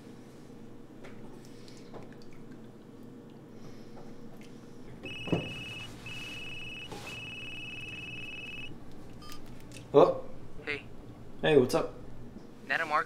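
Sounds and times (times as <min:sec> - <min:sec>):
mobile phone ringing: 0:05.1 - 0:08.7.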